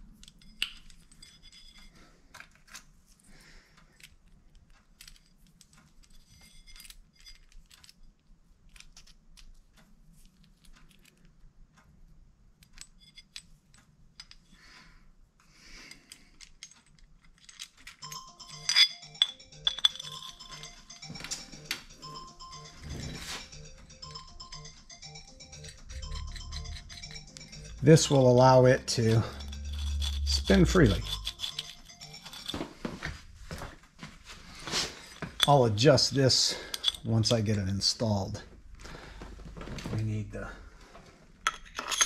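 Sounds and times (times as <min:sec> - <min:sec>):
small metal parts clicking: 0:00.0 - 0:02.9, 0:03.8 - 0:09.6, 0:10.2 - 0:11.3, 0:12.6 - 0:14.6, 0:15.8 - 0:20.7, 0:25.6 - 0:32.6, 0:36.7 - 0:37.1, 0:41.4 - 0:42.0
ringing metallic clinks: 0:18.0 - 0:23.4, 0:24.0 - 0:32.6.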